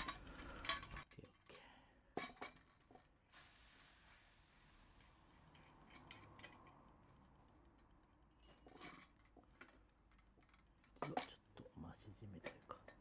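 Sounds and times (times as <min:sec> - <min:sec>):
low hiss: 0:03.2 - 0:06.2.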